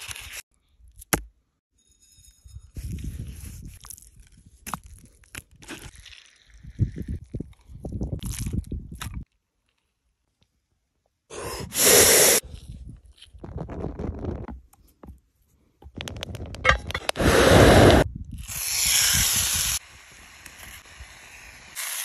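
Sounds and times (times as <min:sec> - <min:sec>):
rush of air in a stove: 0:17.2 - 0:21.8.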